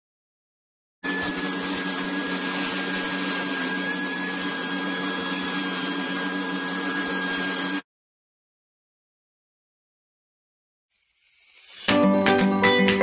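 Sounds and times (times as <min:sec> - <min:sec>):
handheld vacuum cleaner running: 0:01.0 - 0:07.8.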